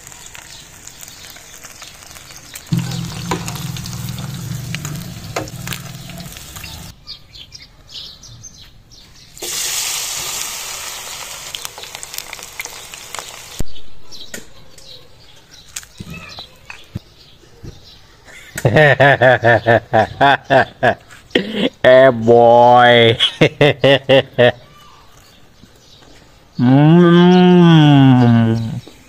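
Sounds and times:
oil sizzling while deep-frying: 0.0 - 6.9, 9.4 - 13.6.

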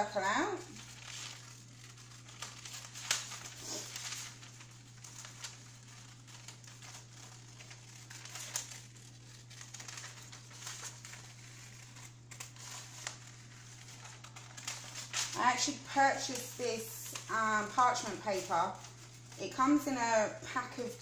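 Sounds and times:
stiff paper crinkling: 0.0 - 21.0.

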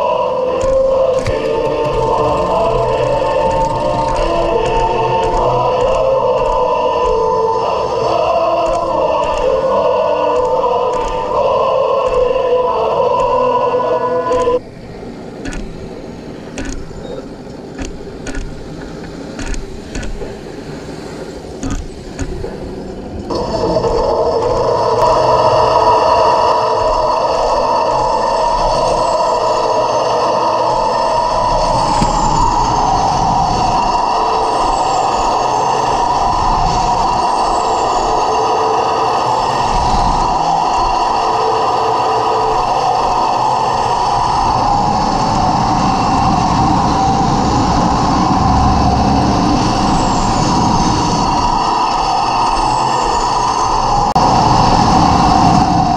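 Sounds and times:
toy tank motor whining: 0.0 - 14.6
light clicks: 16.5 - 20.4, 21.6 - 22.6.

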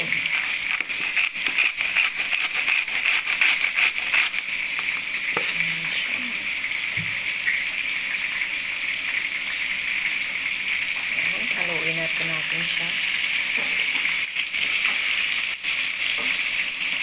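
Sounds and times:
pepper mill grinding: 0.0 - 5.9
vegetables sizzling in a pot: 0.0 - 17.0.

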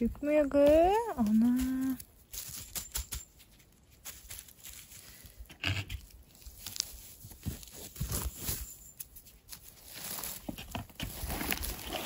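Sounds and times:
leaf litter rustling and tearing: 0.6 - 2.8, 3.8 - 8.8, 9.5 - 12.0.

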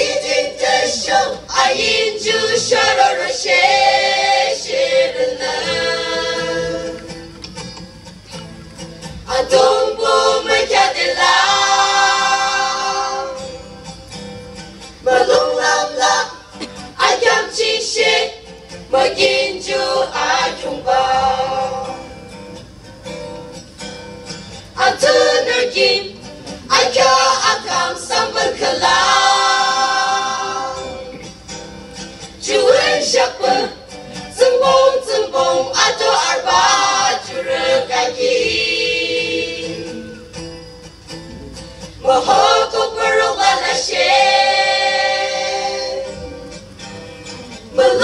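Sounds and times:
choir singing: 0.0 - 7.3, 9.3 - 13.7, 15.0 - 22.3, 24.8 - 31.4, 32.3 - 40.3, 42.0 - 46.8, 47.5 - 48.0.

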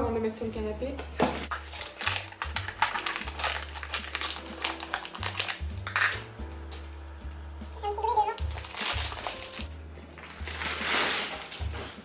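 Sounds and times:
plastic wrapping crinkling: 1.5 - 6.9, 8.0 - 12.0.

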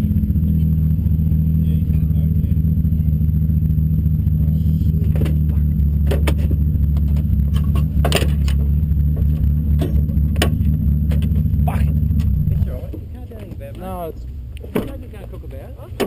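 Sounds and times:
car engine idling: 0.0 - 16.0
sharp clicks and knocks: 5.0 - 13.8, 14.6 - 15.1.

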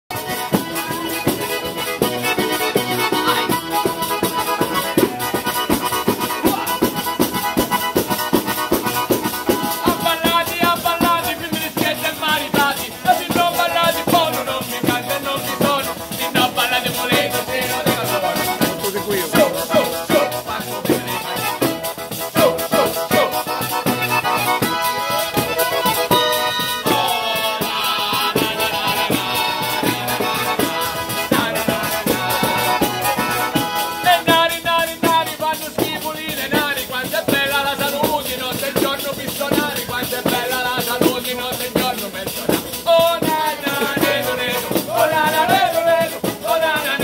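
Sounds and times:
accordions playing folk music: 0.1 - 47.0
frame drum beating: 0.5 - 27.1
drum jingles rattling: 3.1 - 26.5.

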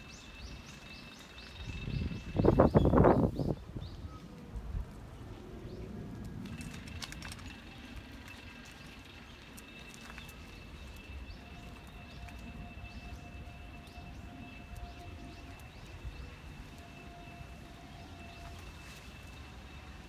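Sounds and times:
low wind rumble: 0.0 - 20.0
thin steady high tone: 8.9 - 20.0.

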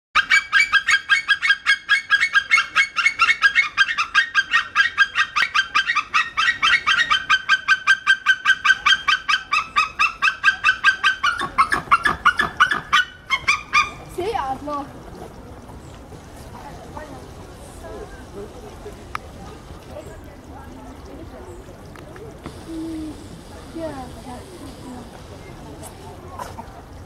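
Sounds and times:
eagle yelping calls: 0.2 - 14.1.

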